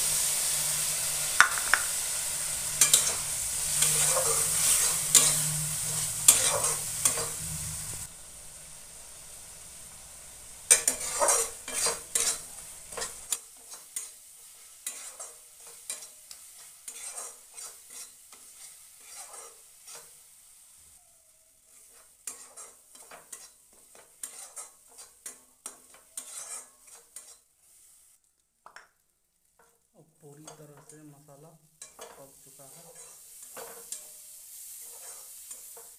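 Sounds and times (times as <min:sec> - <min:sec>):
light sizzle of frying: 0:00.0 - 0:35.9
spatula scraping metal pan: 0:02.8 - 0:08.1, 0:10.7 - 0:14.1, 0:14.8 - 0:20.2, 0:21.7 - 0:27.5, 0:31.8 - 0:34.1, 0:34.8 - 0:35.9.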